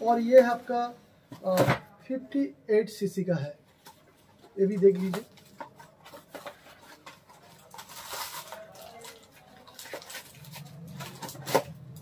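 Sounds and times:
cardboard rustling: 4.7 - 12.0.

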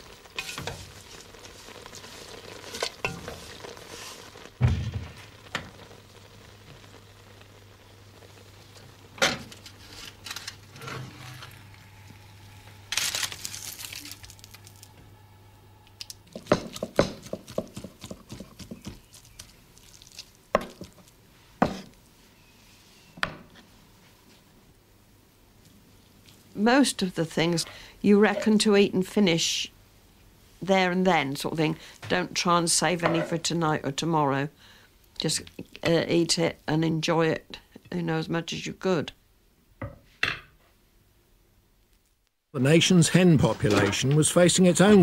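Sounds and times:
wooden spoon stirring in pan: 0.0 - 4.6, 16.3 - 22.0.

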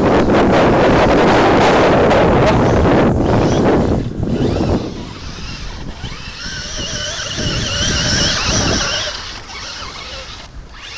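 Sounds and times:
wind buffeting microphone: 0.0 - 10.9
rc truck motors whining: 2.5 - 10.9.

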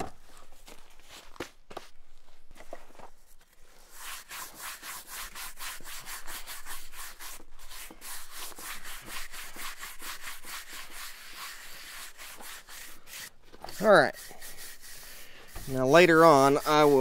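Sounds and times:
brush scrubbing stone: 3.7 - 17.0.

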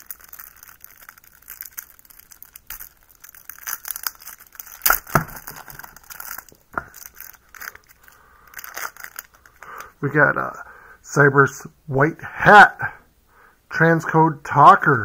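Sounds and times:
plastic wrapping crinkling: 0.0 - 9.9.

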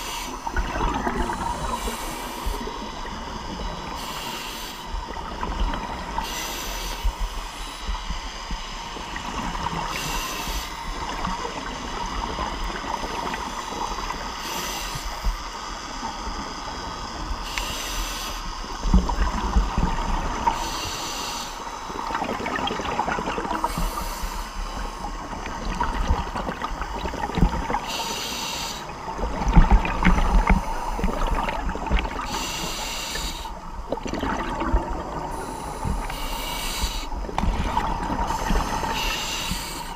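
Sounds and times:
muffled underwater wash: 0.0 - 39.9
scuba regulator exhaled bubbles: 33.1 - 39.9.

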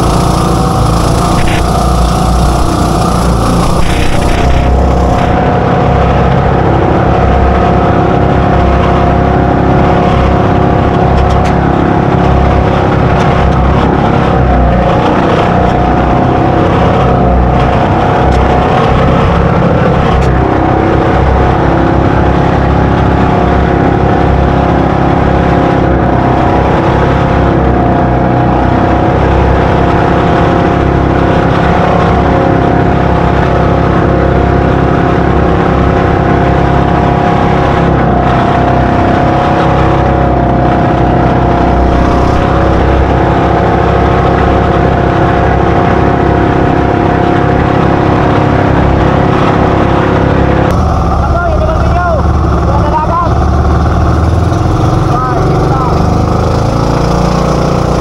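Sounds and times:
spray and wind rushing: 0.0 - 6.9
boat engines running: 0.0 - 58.0.

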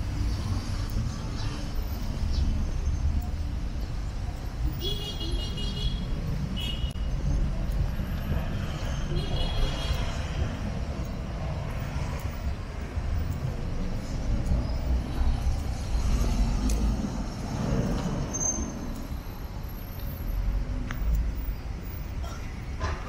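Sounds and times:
traffic rumble: 0.0 - 23.0
high-pitched brake squeal: 18.2 - 20.5.

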